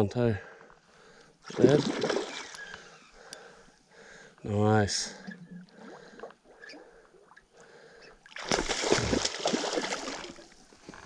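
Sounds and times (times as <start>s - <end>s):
fish splashing water: 1.5s - 2.7s, 8.3s - 10.5s.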